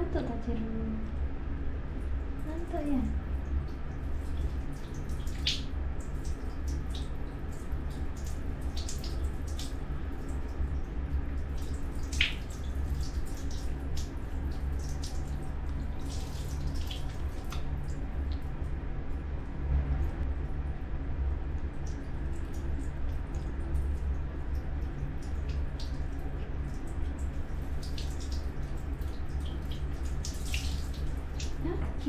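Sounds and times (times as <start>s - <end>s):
steady low hum: 0.0s - 32.0s
water pouring and dripping: 3.2s - 18.6s, 21.6s - 32.0s
small splashes: 21.8s - 32.0s.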